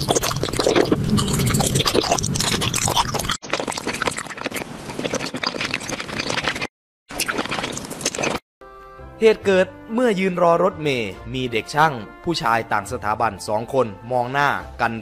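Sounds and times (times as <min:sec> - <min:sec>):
chewing and crunching candy: 0:00.0 - 0:08.4.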